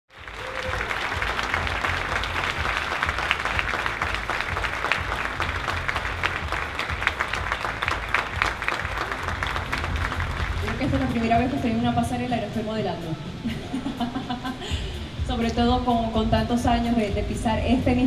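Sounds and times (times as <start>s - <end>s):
audience applauding: 0.1s - 11.6s.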